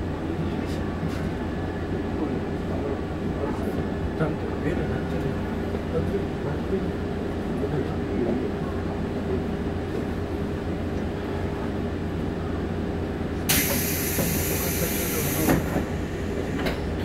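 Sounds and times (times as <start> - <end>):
train rumble and hum: 0.0 - 17.0
sudden hiss: 13.5 - 15.7.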